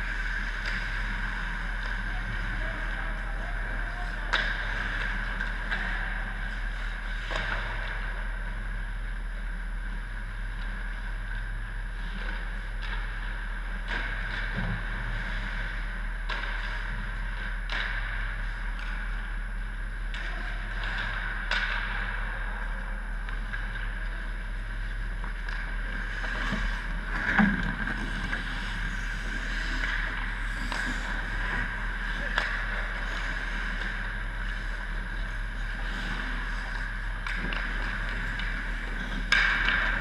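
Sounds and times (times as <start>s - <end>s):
hockey sticks and pucks clacking: 0.0s - 8.6s, 12.2s - 19.4s, 20.1s - 24.5s, 25.2s - 40.0s
steady hum and hiss: 0.0s - 40.0s.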